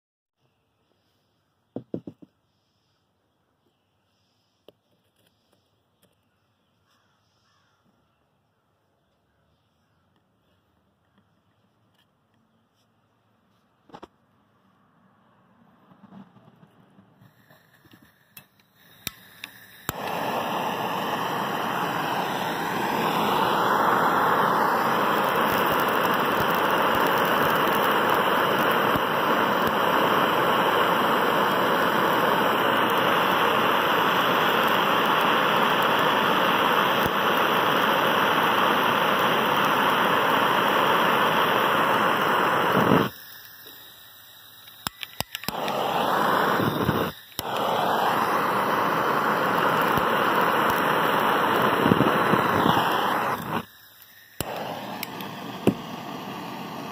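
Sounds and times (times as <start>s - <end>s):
gas torch flame hissing: 17.2s - 56.9s
torch igniter clicks: 17.2s - 56.9s.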